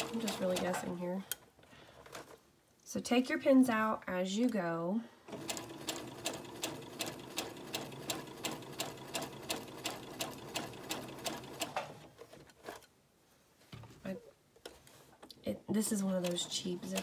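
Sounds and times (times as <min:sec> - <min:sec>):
sewing machine stitching: 0:00.0 - 0:01.0, 0:05.3 - 0:12.9, 0:16.2 - 0:17.0.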